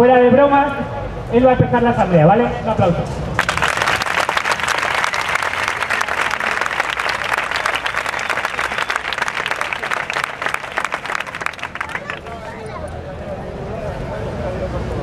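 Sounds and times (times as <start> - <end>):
crowd applauding: 3.4 - 12.7.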